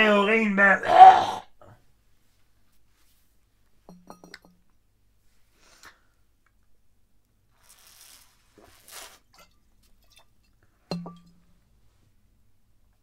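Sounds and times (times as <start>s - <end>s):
bottle set down clink: 3.9s - 4.5s, 10.9s - 11.4s.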